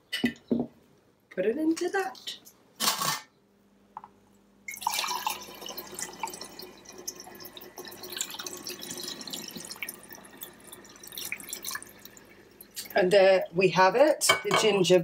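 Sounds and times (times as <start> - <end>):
liquid pouring and splashing: 4.7 - 13.5.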